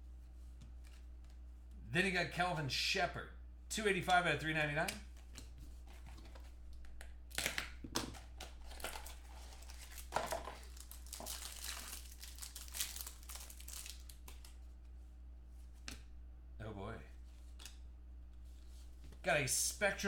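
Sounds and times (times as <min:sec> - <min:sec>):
plastic wrapping crinkling: 0:06.2 - 0:14.7.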